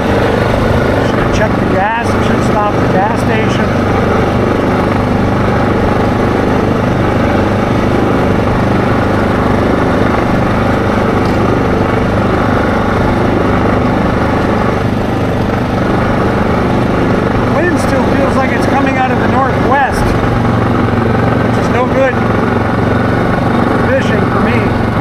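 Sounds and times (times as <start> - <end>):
atv engine running: 0.0 - 25.0.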